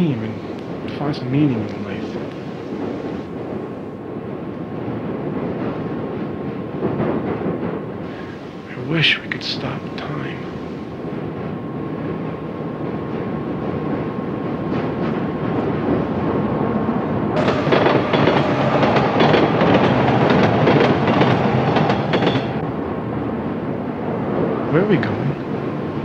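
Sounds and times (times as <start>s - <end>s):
train rumbling: 0.0s - 26.0s
wheels clattering over rails: 17.4s - 22.6s.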